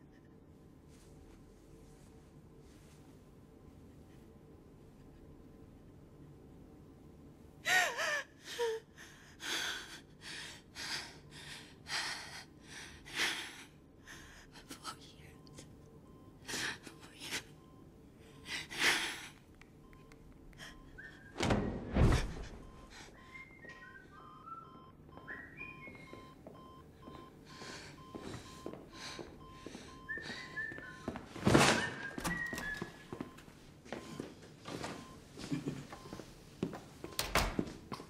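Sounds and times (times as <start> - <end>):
woman sobbing: 7.6 - 10.4, 16.4 - 17.6, 35.4 - 36.0.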